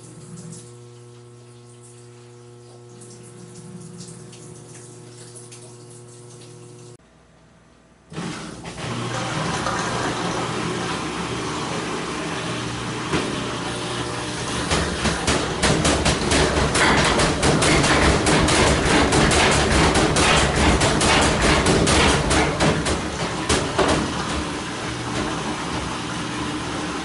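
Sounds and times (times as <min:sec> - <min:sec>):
washer motor hum: 0:00.0 - 0:27.0
washer tub knocking: 0:08.7 - 0:27.0.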